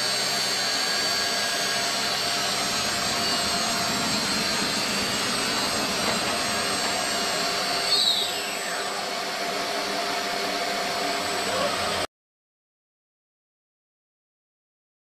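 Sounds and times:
cutting machine whining: 0.0s - 12.1s
whistling pitch sweep: 1.2s - 9.1s.

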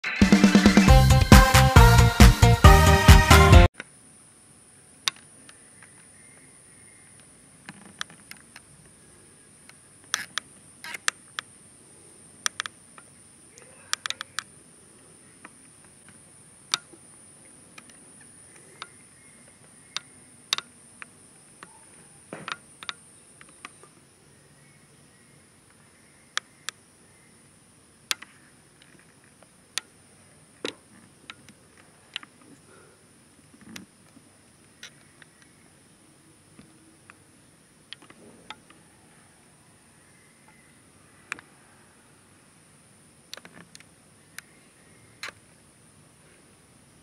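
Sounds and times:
music: 0.0s - 3.7s.

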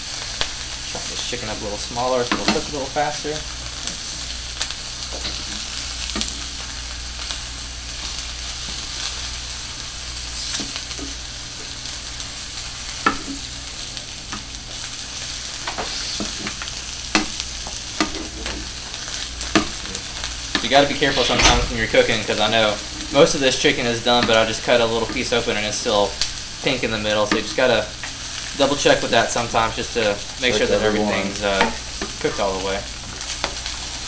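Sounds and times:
chicken sizzling in a pan: 0.0s - 34.0s
utensil scraping a pan: 20.5s - 25.6s.

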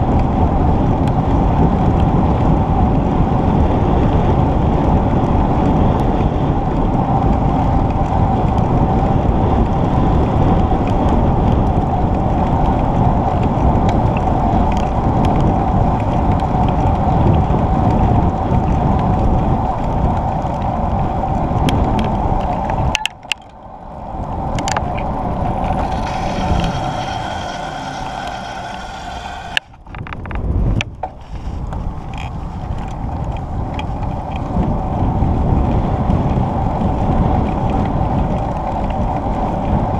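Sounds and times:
bicycle tyre rumble on asphalt: 0.0s - 39.9s
wind rushing over microphone: 0.0s - 39.9s.

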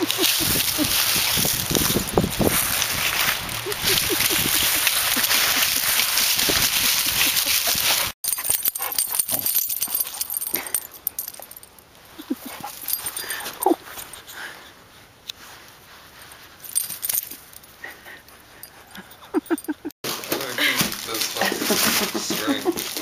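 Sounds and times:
paws rustling dry leaves: 0.0s - 17.8s, 20.1s - 23.0s
dogs whimpering and whining: 12.2s - 14.6s, 17.9s - 19.9s.

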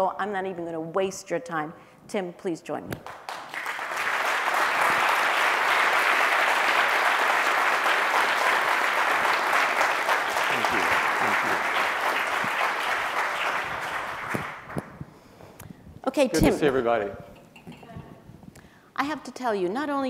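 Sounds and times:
crowd applauding: 3.1s - 15.0s.

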